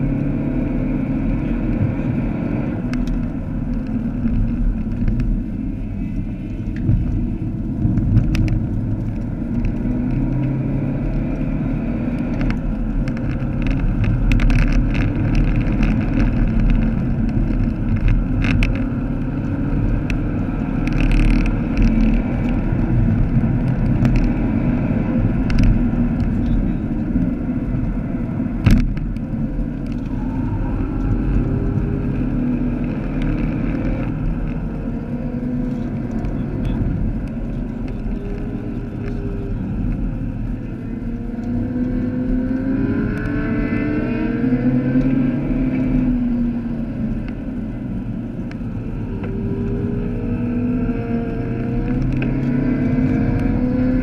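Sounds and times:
car engine running at speed: 0.0 - 54.0
tyre and road noise: 0.0 - 54.0
sharp clicks and knocks: 12.2 - 28.0, 28.6 - 30.2.

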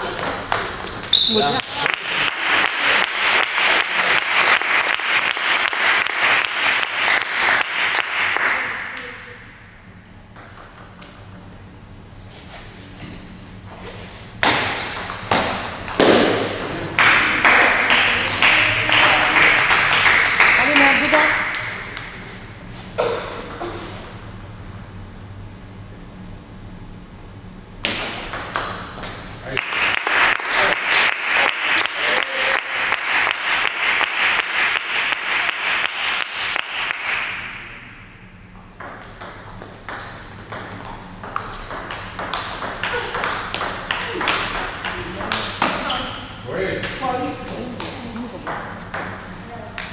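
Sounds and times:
shoe squeak on floor: 0.0 - 1.5, 14.5 - 15.0, 16.3 - 16.8, 40.0 - 40.7, 41.4 - 42.2, 44.0 - 44.3, 45.1 - 46.4
clapping: 1.6 - 9.1, 17.0 - 21.2, 29.5 - 37.3
table tennis ball hits: 14.4 - 22.2, 27.8 - 32.0, 38.6 - 46.2, 47.8 - 49.9.

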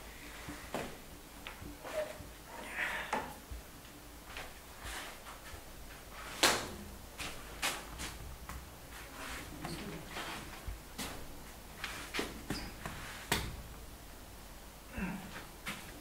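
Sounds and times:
footsteps: 3.2 - 13.6
clothing rustle: 4.2 - 13.4
hands slapping wall: 6.3 - 8.7, 11.8 - 13.7.

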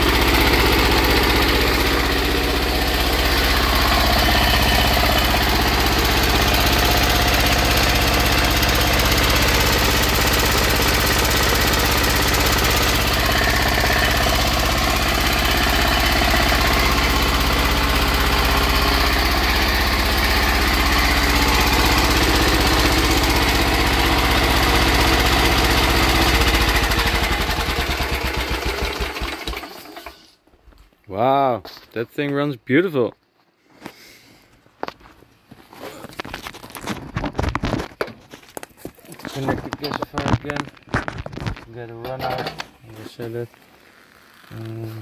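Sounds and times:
diesel engine running: 0.0 - 30.1.

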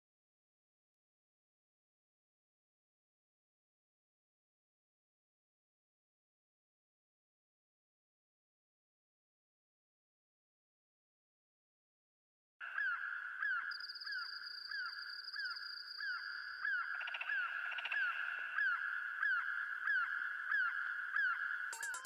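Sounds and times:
synthesizer drone with falling chirps: 12.9 - 22.0.

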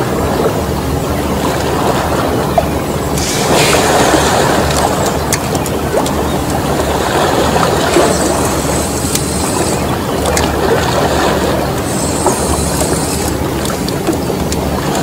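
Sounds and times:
low drone: 0.0 - 15.0
water lapping against rocks: 1.4 - 15.0
small clicks and ticks: 8.0 - 10.5.

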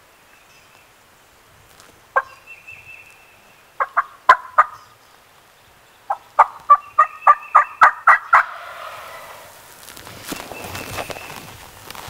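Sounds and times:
turkey gobbling: 3.8 - 4.8, 6.1 - 9.8.

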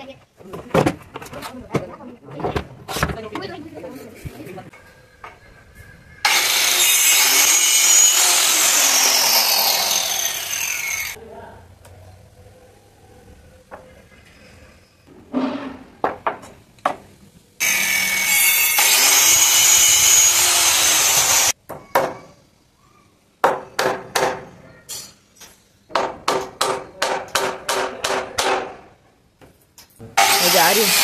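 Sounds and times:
power tool running: 6.2 - 11.2, 17.6 - 21.5, 30.2 - 31.0
hammer striking nails: 23.4 - 24.4, 25.9 - 28.8.

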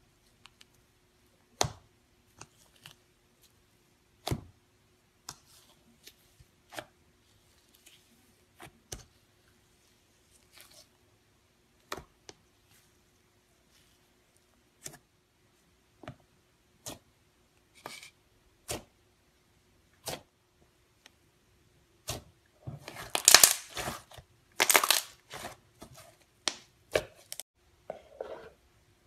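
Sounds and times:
slime popping: 23.0 - 23.9, 24.6 - 25.2.

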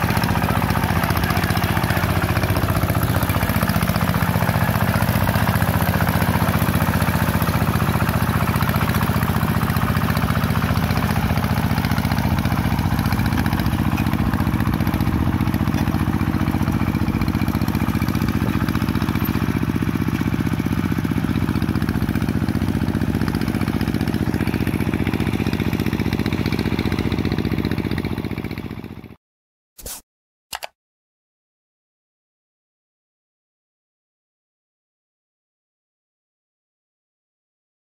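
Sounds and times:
diesel engine running under load: 0.0 - 29.1.

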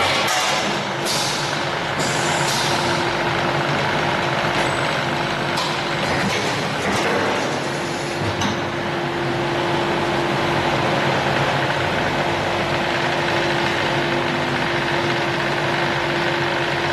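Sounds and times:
machine hum with constant tone: 0.0 - 16.9.

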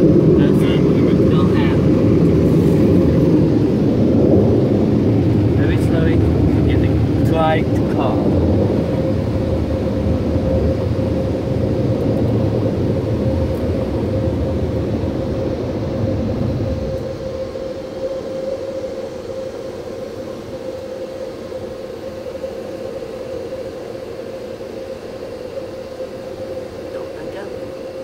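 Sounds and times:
low rumble: 0.0 - 19.1
car wash motor whine: 0.0 - 28.0.

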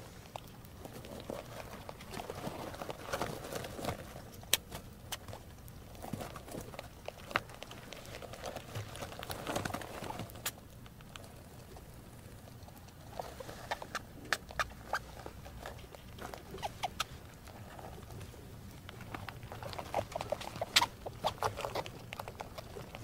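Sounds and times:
rats gnawing and crunching: 0.0 - 23.0
rats squeaking: 12.6 - 18.2, 18.8 - 23.0.

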